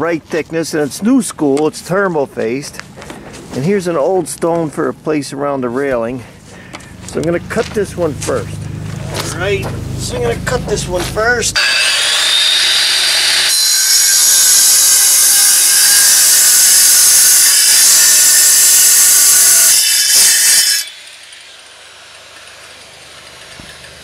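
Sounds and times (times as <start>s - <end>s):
angle grinder cutting stone: 7.0s - 24.0s.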